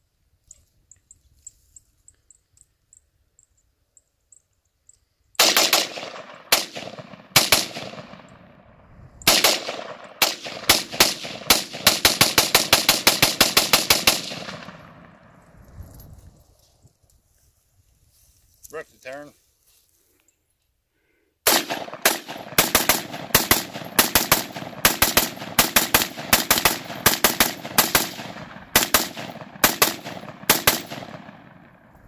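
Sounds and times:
rifle gunshots: 5.4 - 8.6, 9.2 - 15.3, 21.4 - 31.9
rolling echo of gunshots: 5.4 - 15.4, 21.4 - 32.0.

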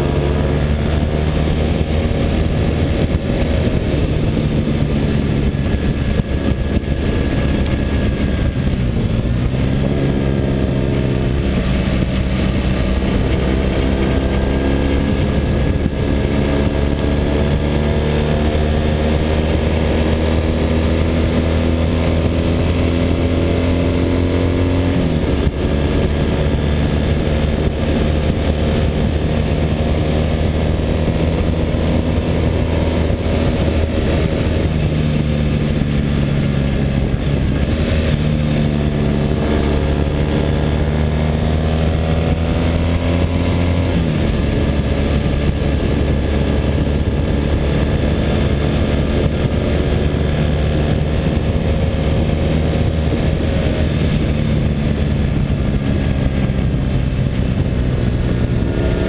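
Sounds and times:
motorcycle engine running: 0.0 - 59.0
wind rush over microphone: 0.0 - 59.0.

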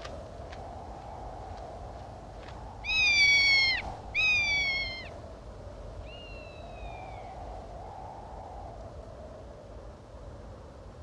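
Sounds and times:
background hiss: 0.0 - 11.0
hawk screaming whistle calls: 2.9 - 5.1.

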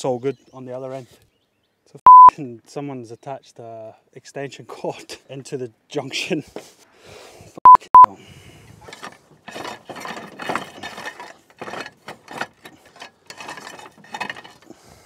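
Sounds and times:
loud beep tone: 2.1 - 2.3, 7.7 - 8.1
cable scraping on roof tiles: 8.7 - 15.0.

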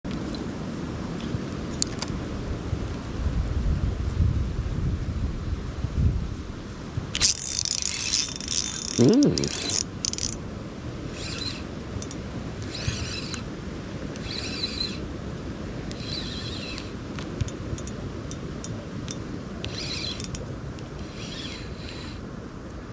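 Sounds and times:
fishing reel cranking: 7.2 - 10.4, 11.1 - 13.5, 14.2 - 15.1, 15.9 - 18.4, 19.1 - 20.4, 21.0 - 22.2
fishing reel spinning: 7.2 - 10.4, 11.1 - 13.5, 14.2 - 15.1, 15.9 - 18.4, 19.1 - 20.4, 21.0 - 22.2.

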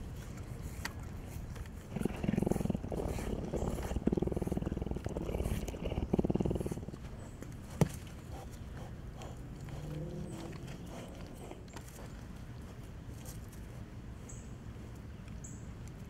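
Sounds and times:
cougar purring: 1.5 - 12.8.

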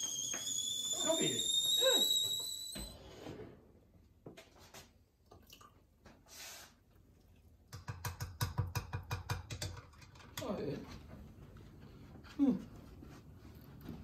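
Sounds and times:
kettle whistle: 0.0 - 3.3.

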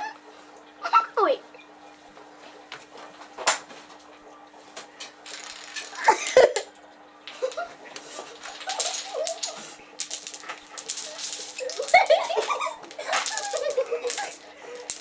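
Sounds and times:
wooden blocks toppling: 5.2 - 15.0.

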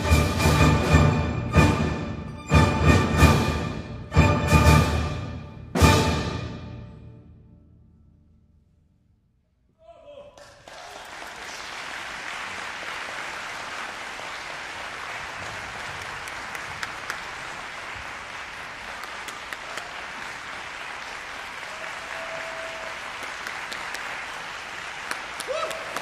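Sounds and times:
audience applauding: 10.4 - 26.0.

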